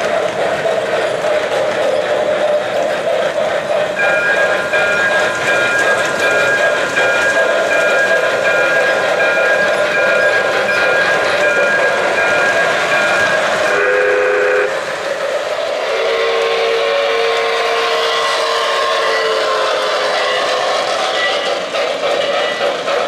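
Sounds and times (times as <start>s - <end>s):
model trains running on track: 0.0s - 23.0s
steam whistle chord: 13.6s - 14.8s, 15.8s - 20.6s.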